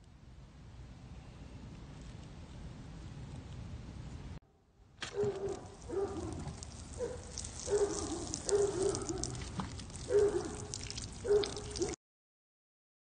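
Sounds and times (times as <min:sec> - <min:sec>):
water splashing onto soil: 0:05.5 - 0:12.0.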